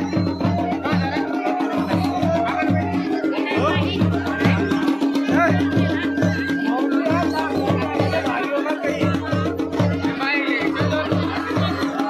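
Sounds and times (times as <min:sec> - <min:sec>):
repeating drum beat: 0:00.0 - 0:12.0.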